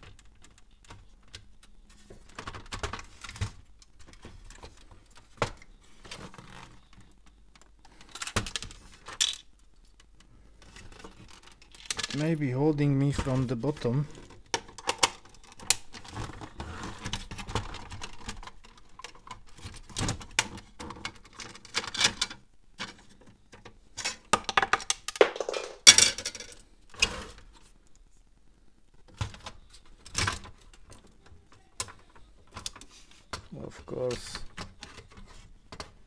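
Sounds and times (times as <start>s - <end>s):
plastic parts clicking and snapping: 0.0s - 12.3s, 13.1s - 27.1s, 29.1s - 36.0s.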